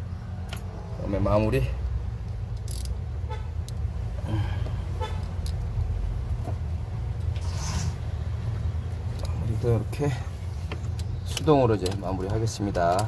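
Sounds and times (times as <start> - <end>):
wrench clicking on metal bolt: 2.6 - 3.0.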